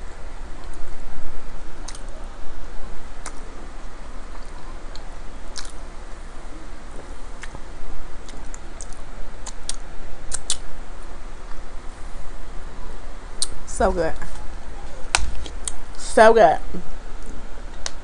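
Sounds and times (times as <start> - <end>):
mouth clicks: 8.3 - 10.6, 13.4 - 13.6.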